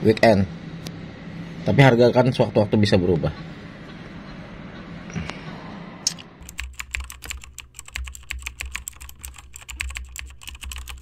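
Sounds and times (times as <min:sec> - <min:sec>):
rapid irregular clicking: 0:06.4 - 0:11.0.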